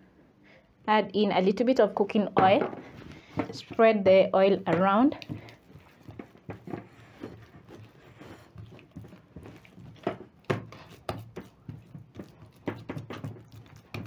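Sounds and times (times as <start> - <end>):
hands slapping wet dough: 4.6 - 14.0.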